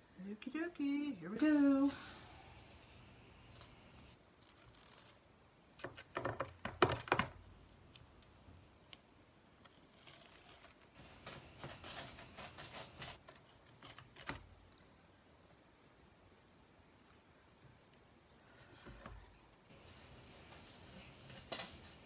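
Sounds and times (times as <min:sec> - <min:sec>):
soft crinkling: 0:00.8 - 0:06.2, 0:07.8 - 0:15.2
transfer peeling off crackling: 0:03.5 - 0:06.5, 0:09.5 - 0:14.9.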